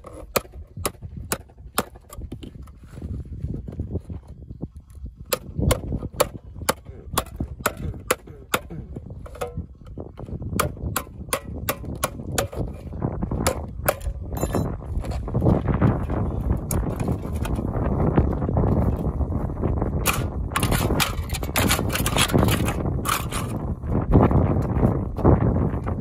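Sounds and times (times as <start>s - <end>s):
stone hammering knife through tin: 13.4s - 14.8s.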